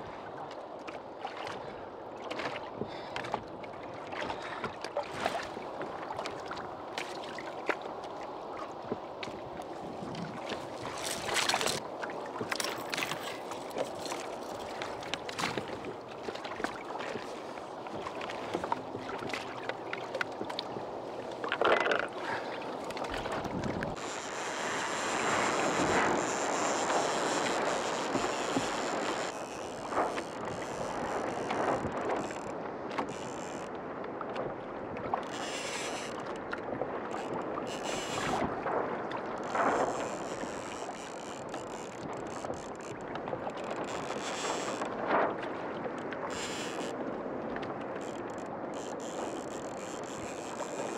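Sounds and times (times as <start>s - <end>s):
water sloshing against hull: 0.0s - 50.9s
wind buffeting microphone: 8.8s - 12.5s, 22.2s - 24.0s.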